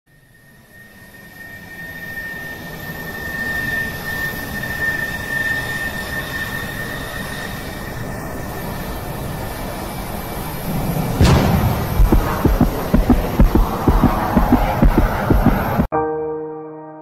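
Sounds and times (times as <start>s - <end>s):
high whistling tone: 0.2s - 8.9s
rushing jet-like drone: 6.0s - 15.9s.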